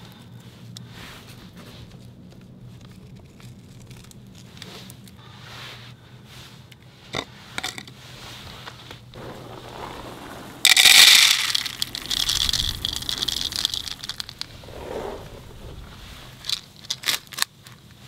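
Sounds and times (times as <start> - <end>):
kibble rattling into a bowl: 10.7 - 14.5.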